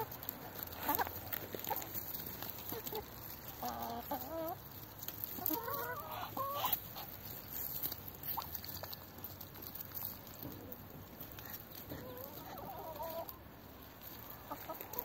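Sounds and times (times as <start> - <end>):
chicken clucking: 0.0 - 15.0.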